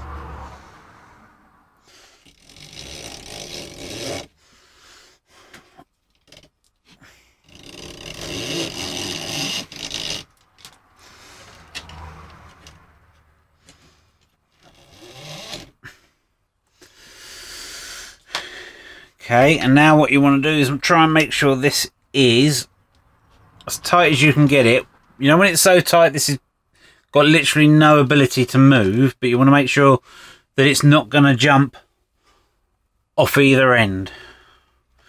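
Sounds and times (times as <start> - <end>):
rubber belt rubbing and scraping: 1.8 - 16.2.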